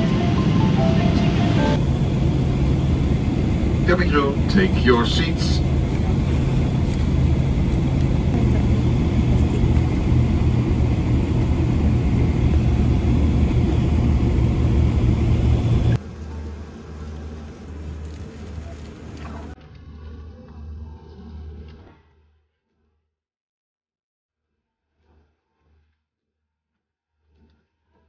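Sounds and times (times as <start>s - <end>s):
airliner cabin drone: 0.0s - 21.6s.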